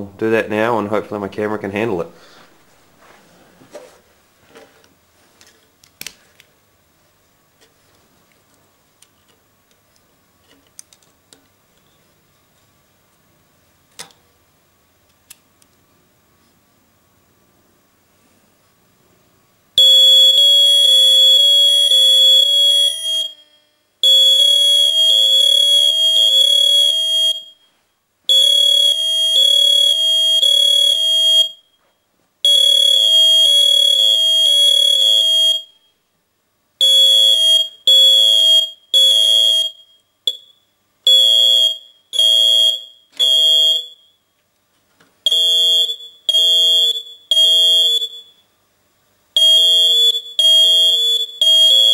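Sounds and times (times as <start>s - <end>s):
smoke alarms shrieking: 19.8s - 31.9s, 32.5s - 35.8s, 36.8s - 44.2s, 45.3s - 48.4s, 49.4s - 51.9s.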